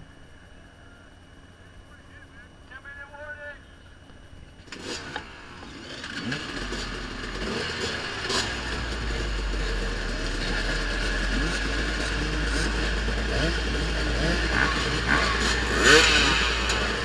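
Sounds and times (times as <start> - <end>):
dirt bike engines revving: 3.8 - 17.0
deep engine rumble: 5.3 - 17.0.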